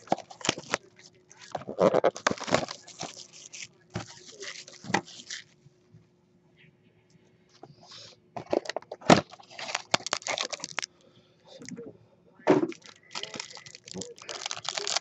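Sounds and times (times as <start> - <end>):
plastic wrapper tearing and crinkling: 0.0 - 5.5, 8.5 - 10.9, 12.7 - 15.0.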